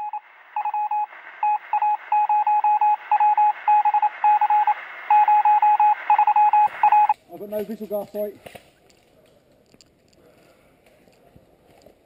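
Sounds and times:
morse code radio beeps: 0.0 - 7.2
radio static hiss: 0.0 - 7.2.

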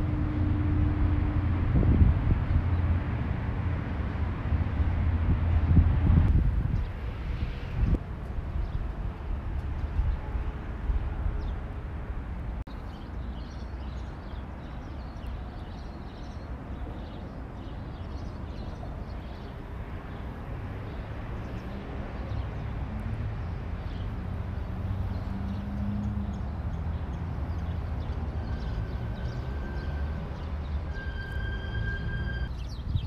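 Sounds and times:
wind on microphone: 0.0 - 12.6, 30.8 - 33.0
distant traffic: 0.0 - 33.0
small birds chirping: 12.7 - 31.0, 32.5 - 33.0.

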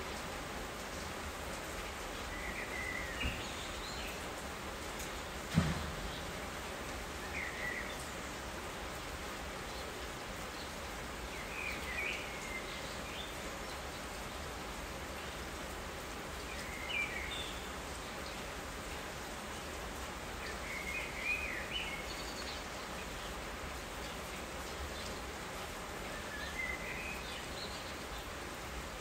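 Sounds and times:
steady rain hissing: 0.0 - 29.0.

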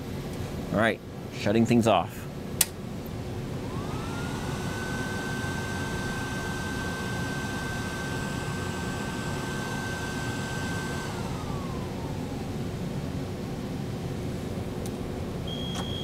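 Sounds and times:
cooling fans rushing: 0.0 - 16.0
high whine sliding down: 3.6 - 13.5.

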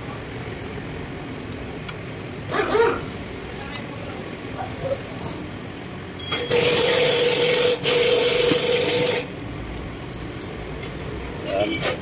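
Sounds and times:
workshop tool hissing: 6.5 - 9.3.

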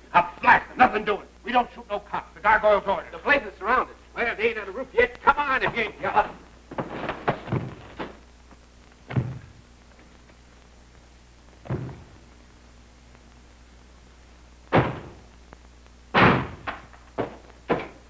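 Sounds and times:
steady low hum: 0.0 - 18.0
heavy door thuds: 6.7 - 8.2, 9.1 - 9.6, 11.6 - 12.2, 14.7 - 15.2, 16.2 - 18.0.

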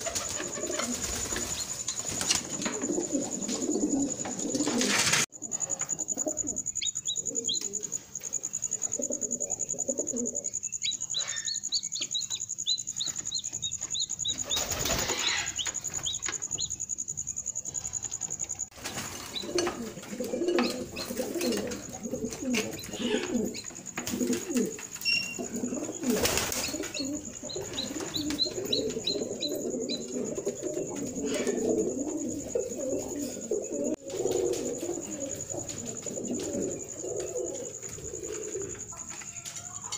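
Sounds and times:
pigeons cooing: 0.0 - 16.4, 18.8 - 39.1
chicks peeping: 6.1 - 8.0, 9.1 - 16.8, 25.5 - 33.4.

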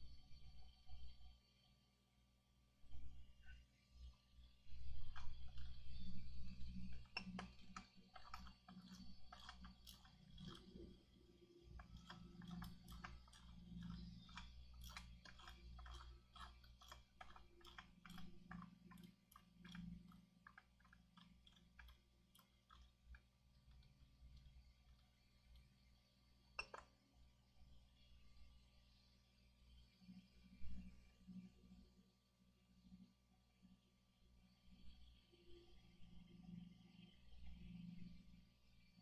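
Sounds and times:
steady low hum: 2.9 - 39.0
clicking of small tools: 6.6 - 10.8, 11.8 - 25.7.

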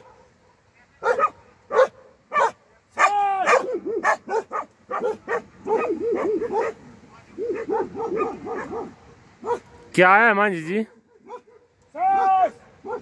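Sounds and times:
dogs barking: 0.0 - 9.9, 10.8 - 13.0
dog yelping: 1.0 - 6.8, 7.4 - 9.7, 11.1 - 13.0.

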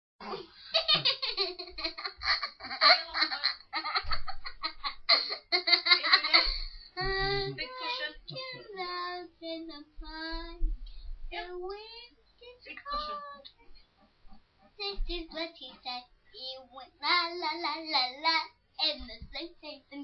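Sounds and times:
girl laughing: 0.7 - 8.4
girl sing-song vocalising: 5.4 - 10.7, 12.4 - 13.5.

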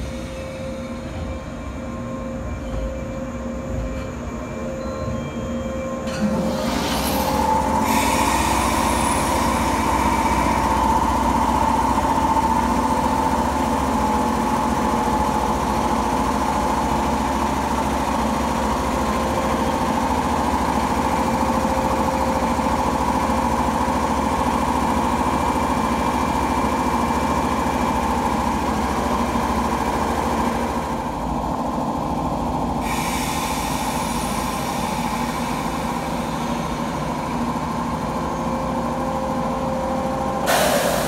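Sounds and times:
electric train equipment humming: 0.0 - 41.0.

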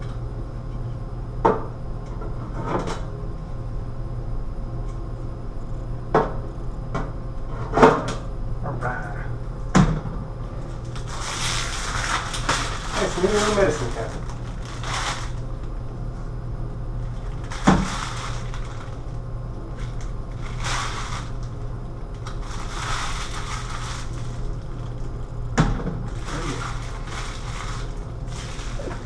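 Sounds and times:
steady low hum: 0.0 - 29.0
plastic bag crinkling: 10.8 - 15.5, 17.0 - 25.3, 26.1 - 29.0.

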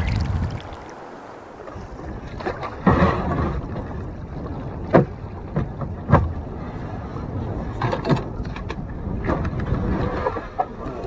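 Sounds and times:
paddle strokes splashing water: 0.0 - 11.0
wind rumble on microphone: 0.0 - 11.0.

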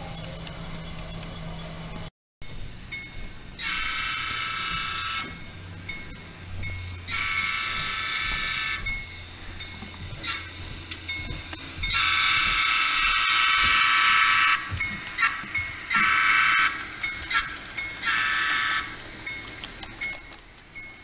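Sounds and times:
faint low engine hum: 0.0 - 21.0
model train electronic horn blasts: 3.6 - 5.4, 7.1 - 8.8, 11.9 - 19.0.

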